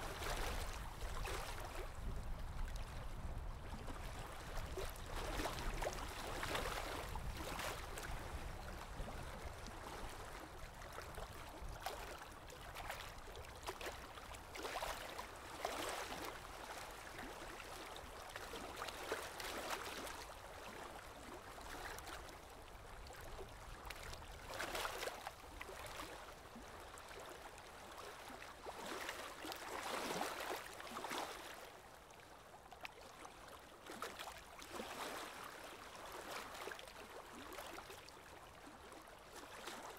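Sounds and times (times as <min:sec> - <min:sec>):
water rushing and lapping: 0:00.0 - 0:32.2, 0:32.9 - 0:39.9.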